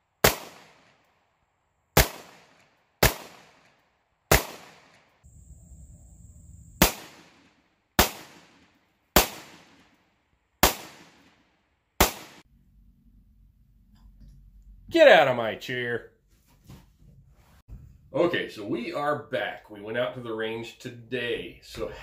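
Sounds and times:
pistol shots: 0.2 - 1.0, 2.0 - 5.1, 6.8 - 10.0, 10.6 - 11.4, 12.0 - 12.4.

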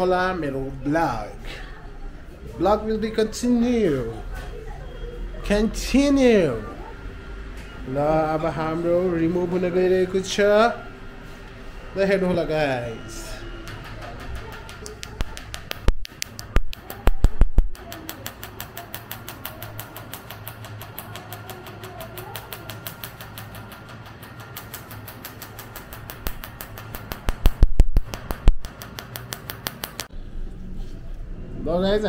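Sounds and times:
laser firing rapid clicks: 14.8 - 30.1.

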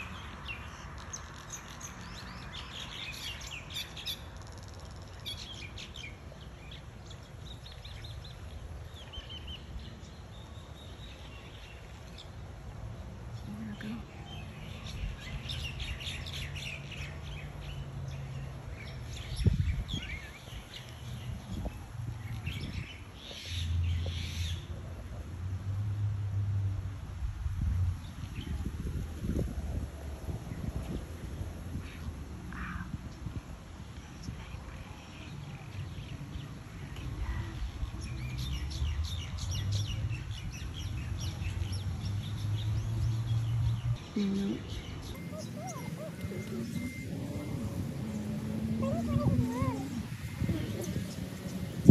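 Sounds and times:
flock of birds chirping: 0.0 - 24.8, 31.7 - 51.9
birds chirping and calling: 37.0 - 51.9.

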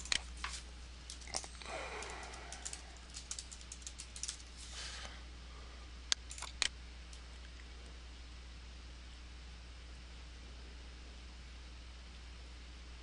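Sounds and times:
steady low hum: 0.0 - 13.0
keyboard keys clicking: 1.1 - 4.5.

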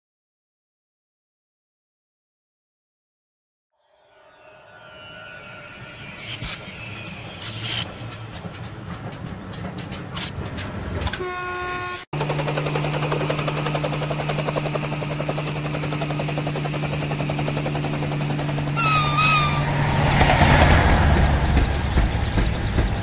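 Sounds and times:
short wavering high tone: 3.8 - 7.9, 18.8 - 20.6
electric train hum: 3.8 - 23.0
fast train rushing: 4.0 - 23.0
wheels clattering on rails: 6.2 - 11.3, 12.2 - 23.0.

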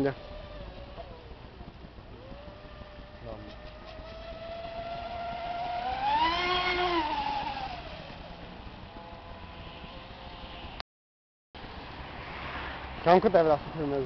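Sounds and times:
model speedboat motor whining: 0.0 - 10.4.

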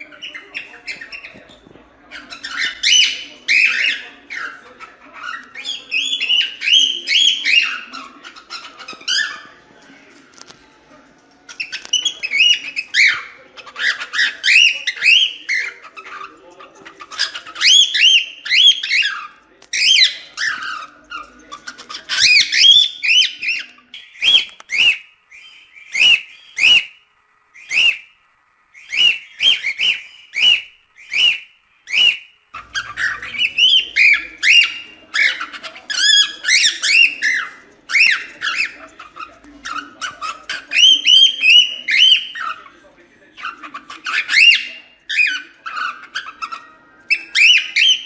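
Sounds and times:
cockatiel whistling and warbling: 11.5 - 16.3, 17.1 - 28.1, 28.7 - 42.7, 43.4 - 48.0.

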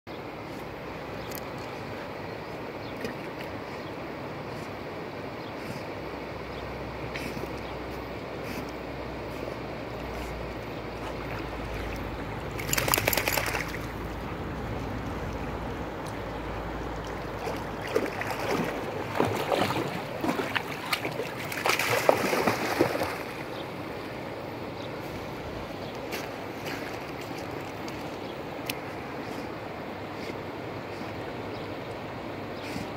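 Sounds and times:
rushing water background: 0.1 - 32.9
dog splashing through water: 11.0 - 14.2, 17.0 - 23.6.

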